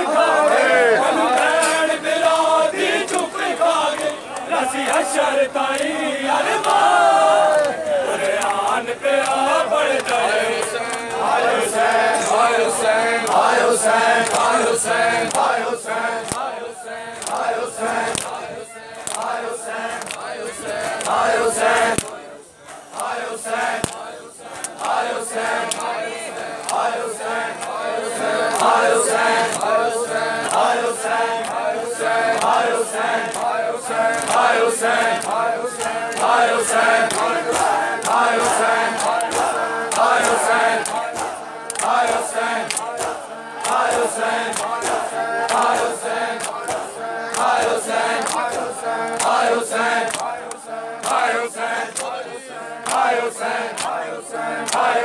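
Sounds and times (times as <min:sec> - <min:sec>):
men chanting: 0:00.0 - 0:55.0
hands slapping chests: 0:23.8 - 0:24.0, 0:37.1 - 0:49.4, 0:50.0 - 0:51.2.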